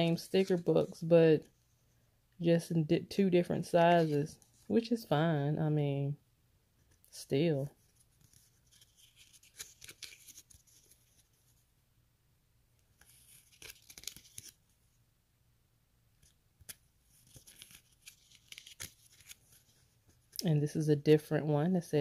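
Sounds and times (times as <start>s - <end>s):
paper pages turning: 7.8s - 11.6s, 12.9s - 14.7s, 16.2s - 20.4s.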